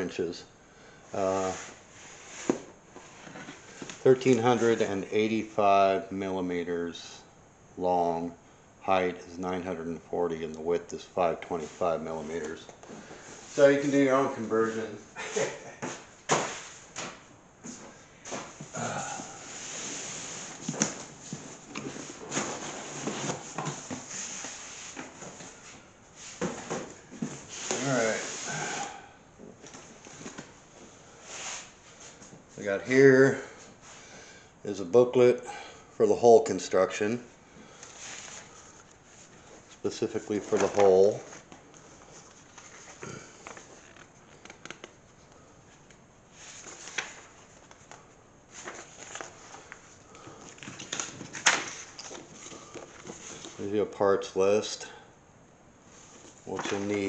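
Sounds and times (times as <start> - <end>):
paper rustling: 37.9 - 45.0, 46.4 - 53.6, 56.0 - 57.0.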